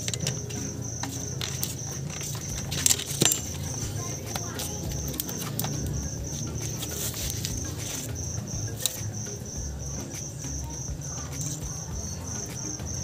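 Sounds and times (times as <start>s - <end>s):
metal tools clicking: 0.0s - 9.3s
cricket chirping: 0.0s - 13.0s.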